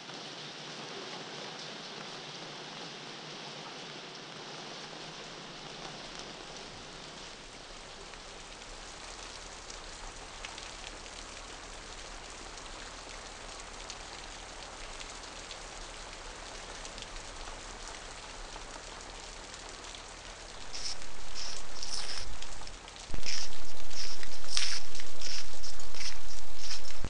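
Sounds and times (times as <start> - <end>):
rain hissing: 4.4 - 27.0
low even hum: 20.6 - 27.0.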